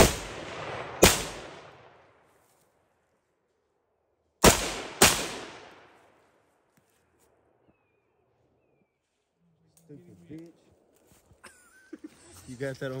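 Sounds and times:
gunshots with echo: 0:00.0 - 0:02.0, 0:04.4 - 0:05.9.

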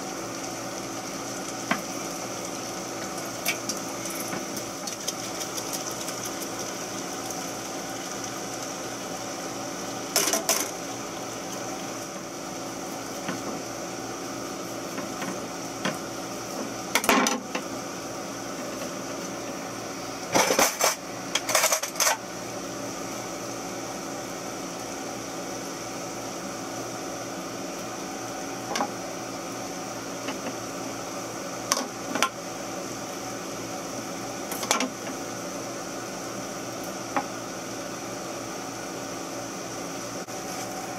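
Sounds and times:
steady hum and hiss: 0:00.0 - 0:40.9
kitchen utensils and dishes clinking: 0:20.3 - 0:22.2.

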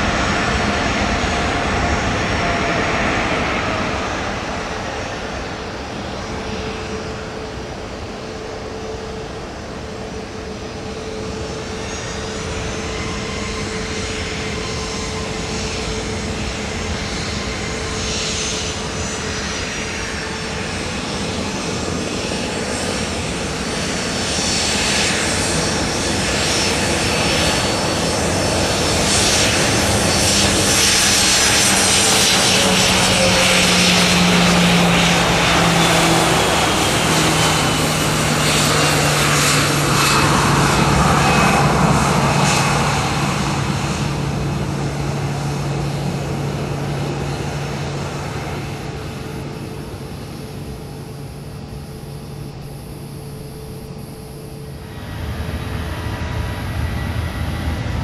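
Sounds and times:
aircraft engines running: 0:00.0 - 0:58.0
steady hum: 0:46.0 - 0:58.0
high whine falling in pitch: 0:48.8 - 0:58.0.

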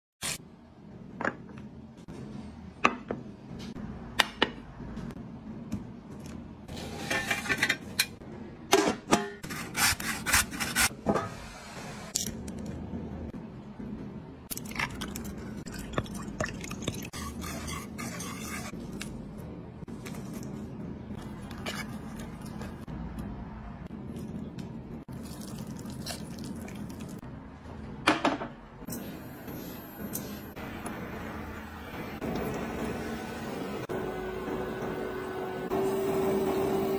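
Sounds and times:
dishes and utensils clinking: 0:06.9 - 0:09.6
whisk scraping metal bowl: 0:17.1 - 0:18.8.

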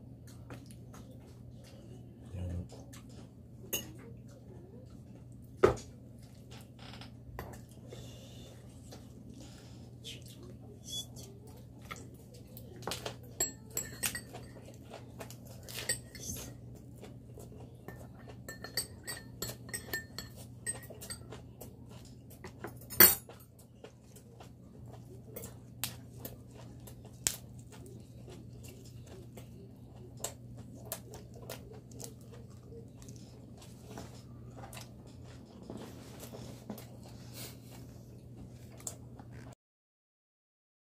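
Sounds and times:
dishes and cutlery clinking: 0:02.7 - 0:04.1, 0:12.7 - 0:23.6.

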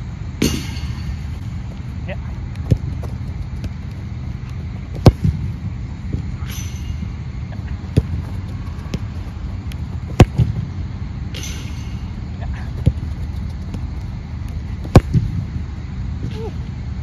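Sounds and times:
football kicked hard: 0:02.3 - 0:04.0, 0:04.9 - 0:06.3, 0:07.8 - 0:10.7, 0:12.4 - 0:15.5.

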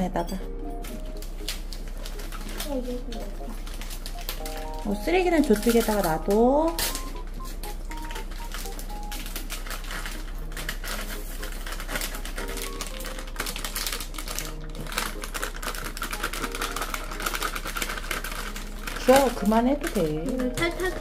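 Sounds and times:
packet rustling: 0:00.8 - 0:21.0
dry seasoning ticking into tray: 0:03.6 - 0:20.6.

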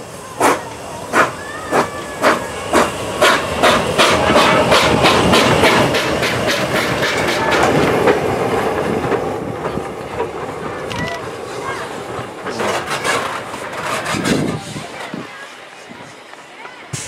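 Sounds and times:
steam hissing: 0:00.0 - 0:10.6, 0:11.2 - 0:17.0
steam locomotive chuffing: 0:00.0 - 0:17.0
train wheel noise: 0:00.0 - 0:17.0.

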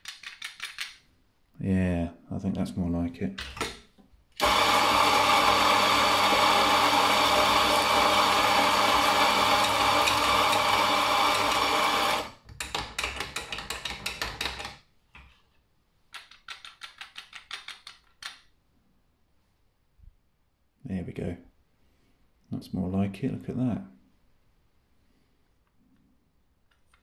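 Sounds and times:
coffee grinder motor grinding: 0:04.4 - 0:12.4.

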